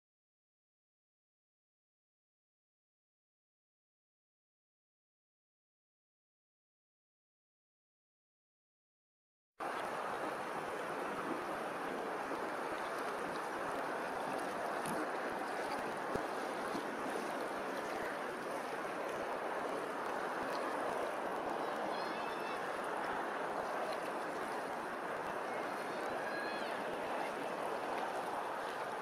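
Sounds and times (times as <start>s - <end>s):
water lapping and rippling: 9.6s - 29.0s.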